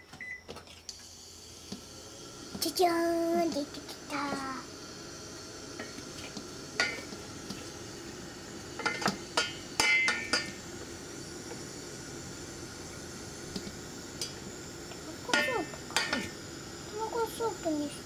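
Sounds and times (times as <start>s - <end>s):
knocks and clinks against pot: 8.8s - 10.6s.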